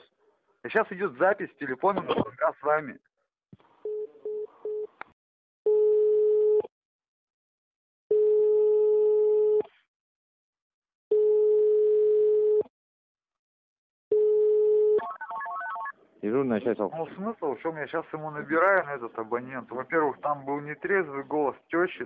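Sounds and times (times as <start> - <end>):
long telephone beeps: 5.7 - 6.6, 14.1 - 15.9.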